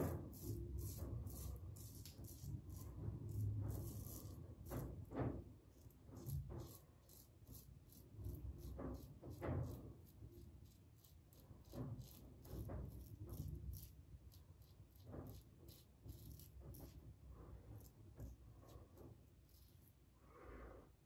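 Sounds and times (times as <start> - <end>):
razor scraping stubble: 0.0 - 5.1, 5.7 - 17.1.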